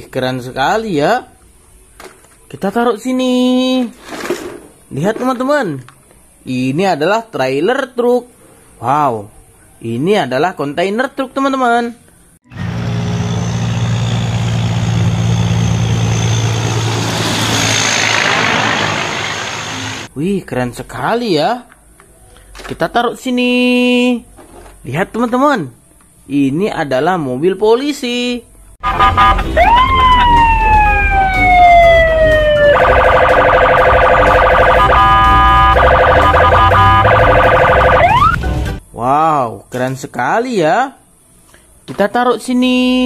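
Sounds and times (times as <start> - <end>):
road and tyre noise: 12.1 - 20.2, 28.8 - 38.8
truck engine droning: 12.5 - 20.1, 28.8 - 38.7
police siren wailing: 28.8 - 38.4.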